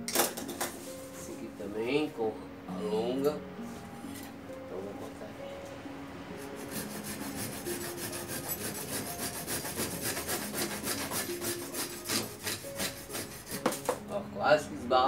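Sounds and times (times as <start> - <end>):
hand saw cutting branch: 6.4 - 14.0.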